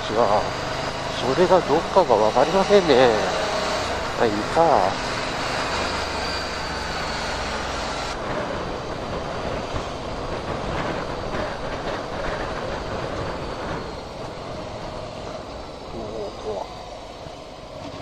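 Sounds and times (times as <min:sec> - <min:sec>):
motorcycle engine running: 0:00.0 - 0:06.6
wind rushing over microphone: 0:00.0 - 0:18.0.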